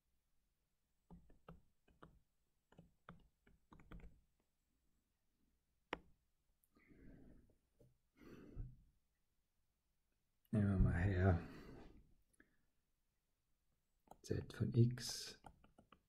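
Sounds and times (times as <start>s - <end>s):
stylus tapping on tablet screen: 1.0s - 4.5s, 5.9s - 6.2s, 15.4s - 16.0s.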